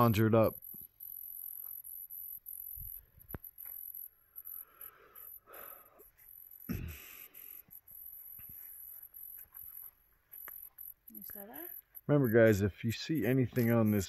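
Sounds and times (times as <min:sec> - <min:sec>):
crickets chirring: 0:00.0 - 0:14.0
soft rustle: 0:07.4 - 0:12.1.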